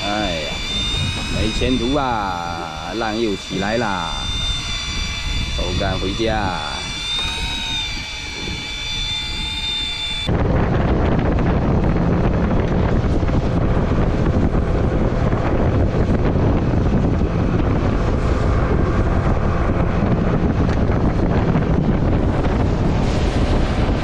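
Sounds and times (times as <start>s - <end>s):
boat engine hum: 0.0s - 10.3s
wind buffeting microphone: 0.0s - 24.0s.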